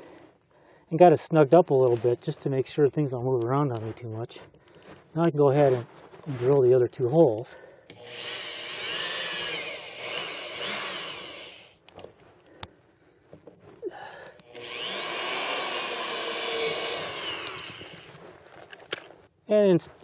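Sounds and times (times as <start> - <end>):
electric drill boring: 7.9 - 11.8, 14.4 - 18.2.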